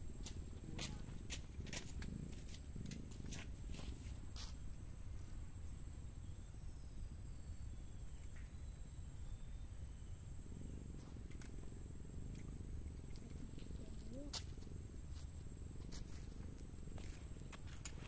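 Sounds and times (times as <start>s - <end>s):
insect drone: 0.0s - 18.0s.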